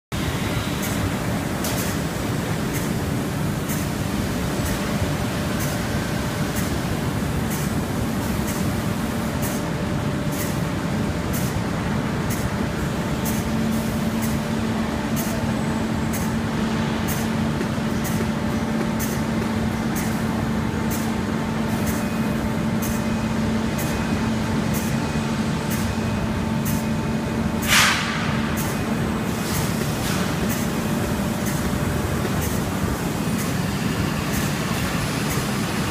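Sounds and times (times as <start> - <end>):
steady low hum: 0.2 - 35.9
short loud hiss: 27.7 - 28.2.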